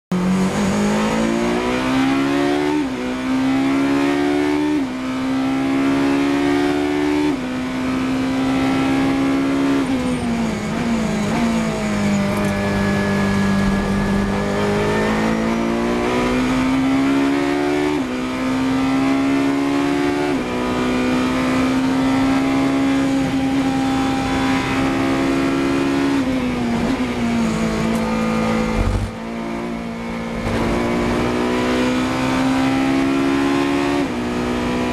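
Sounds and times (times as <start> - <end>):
racing car engine revving: 0.1 - 34.9
short low thump: 28.7 - 29.2.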